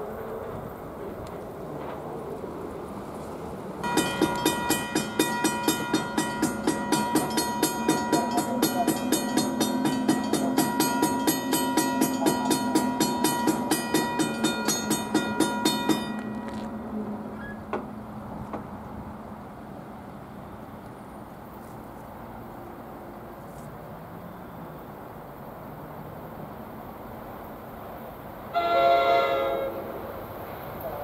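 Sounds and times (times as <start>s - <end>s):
crossing warning bell ringing: 3.8s - 17.7s.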